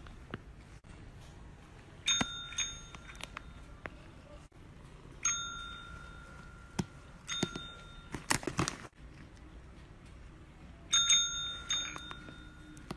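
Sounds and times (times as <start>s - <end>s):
desk call bell dinging: 2.1s - 3.8s, 5.2s - 8.3s, 10.9s - 12.9s.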